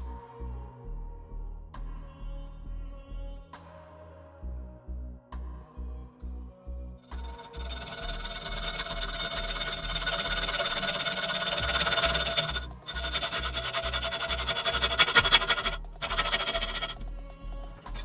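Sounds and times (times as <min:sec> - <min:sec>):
background music with low beat: 0:00.0 - 0:07.6, 0:14.9 - 0:18.0
hacksaw rasping through metal: 0:07.1 - 0:17.2, 0:17.8 - 0:18.0.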